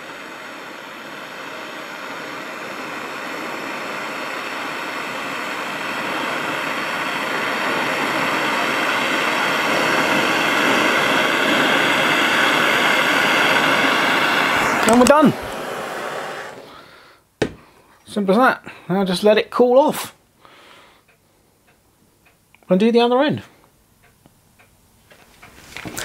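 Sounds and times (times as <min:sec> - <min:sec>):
propane torch hissing: 0:00.0 - 0:17.8, 0:25.7 - 0:26.0.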